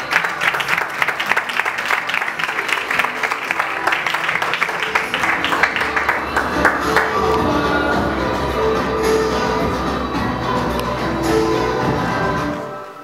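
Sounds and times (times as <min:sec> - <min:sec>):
crowd applauding: 0:00.0 - 0:08.2
music playing: 0:00.0 - 0:13.0.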